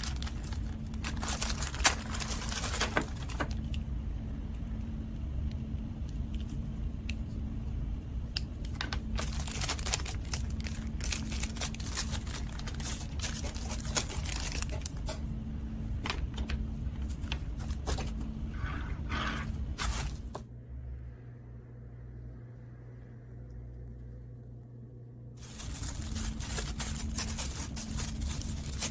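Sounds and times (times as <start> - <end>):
plastic bags crinkling: 0.0 - 3.7, 8.8 - 15.0, 19.8 - 20.4, 25.4 - 28.9
steady low hum: 0.0 - 28.9.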